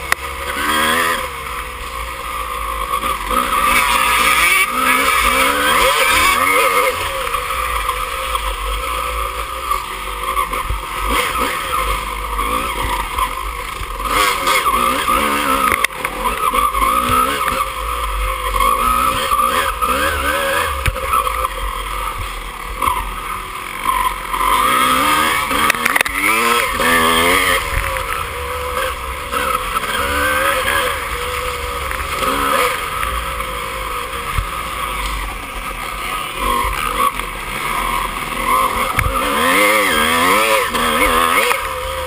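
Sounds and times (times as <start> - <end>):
dirt bike engine revving: 0.0 - 42.0.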